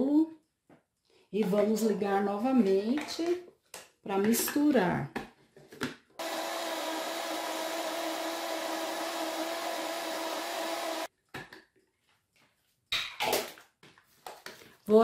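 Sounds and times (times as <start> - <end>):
blender running: 6.2 - 11.1.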